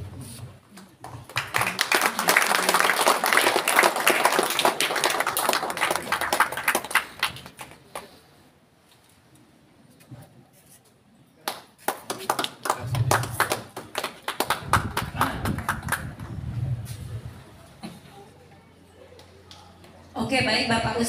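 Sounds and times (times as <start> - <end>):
audience applauding: 0.9 - 8.1, 11.5 - 16.4.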